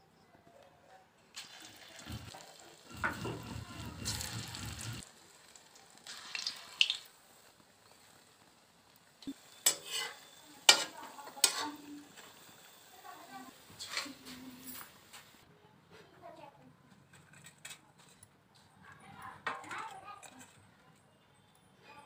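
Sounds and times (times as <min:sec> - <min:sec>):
batter sizzling in hot oil: 0:01.3 - 0:15.4
metal spatula scraping pan: 0:01.4 - 0:05.0, 0:09.5 - 0:12.5, 0:13.7 - 0:14.7.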